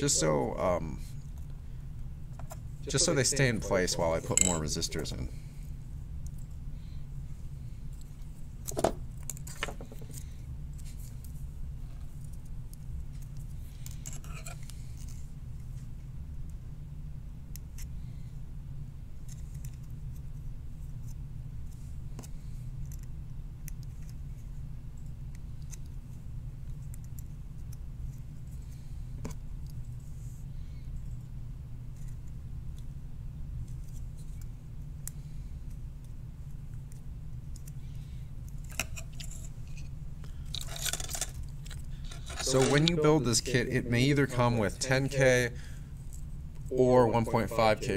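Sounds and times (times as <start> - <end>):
steady low hum: 0.0 - 47.9
clicks and rustles of wire leads: 38.4 - 43.1.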